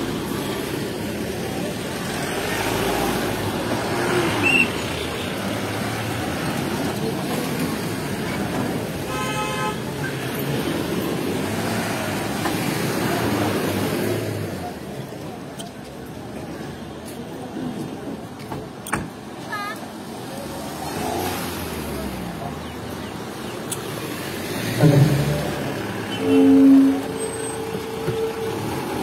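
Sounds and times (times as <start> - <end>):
car horn: 9.0 - 10.0, 26.0 - 28.9.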